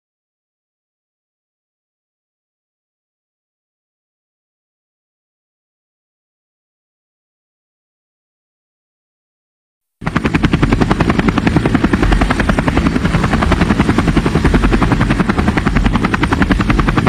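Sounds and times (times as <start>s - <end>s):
helicopter chopping pulse: 10.0s - 17.0s.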